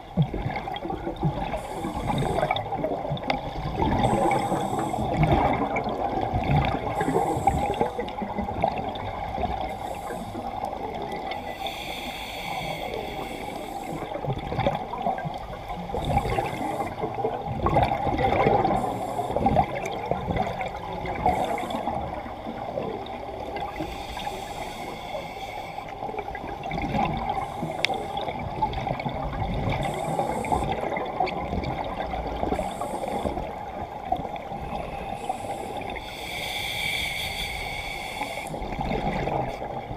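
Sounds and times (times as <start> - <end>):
gurgle of exhaled bubbles: 0.0 - 9.7, 14.0 - 23.8, 26.2 - 35.9, 38.6 - 39.9
hissing regulator inhalations: 1.5 - 2.7, 3.9 - 5.4, 6.9 - 8.3, 9.6 - 14.2, 18.6 - 19.8, 23.8 - 26.1, 29.8 - 31.0, 32.4 - 33.6, 34.6 - 38.7.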